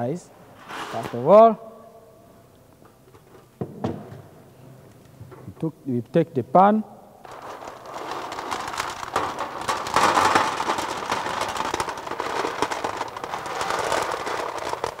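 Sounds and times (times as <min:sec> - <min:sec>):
gravel rattling on metal: 0:07.2 - 0:15.0.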